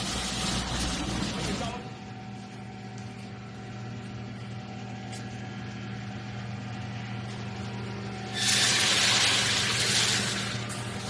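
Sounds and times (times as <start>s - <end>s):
welding machine humming: 0.0s - 11.0s
loud hiss: 8.3s - 10.6s.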